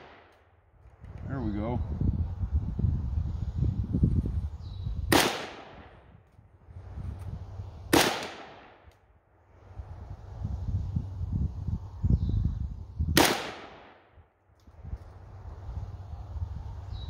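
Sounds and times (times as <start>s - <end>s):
rifle shots with echo: 5.1s - 6.0s, 7.9s - 8.9s, 13.2s - 14.0s.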